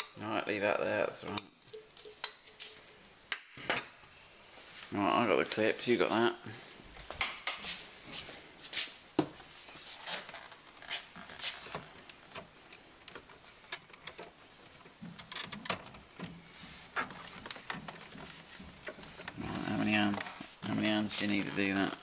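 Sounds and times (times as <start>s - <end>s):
plastic rubbing and handling: 9.8s - 22.0s.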